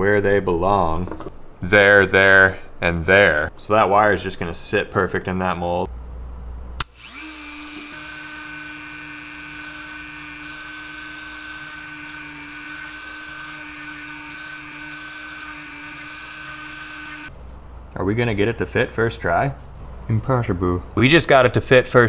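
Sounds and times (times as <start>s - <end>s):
bit grinding wood: 6.8s - 17.3s
rotary tool whining: 6.8s - 17.3s.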